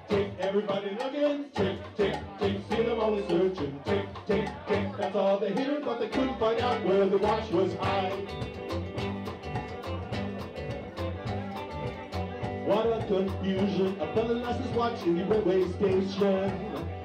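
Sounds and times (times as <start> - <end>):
bass notes: 0.0 - 0.6, 1.6 - 5.2, 6.1 - 17.0
steady drum beat: 0.0 - 5.2, 6.1 - 17.0
guitar melody: 6.2 - 17.0.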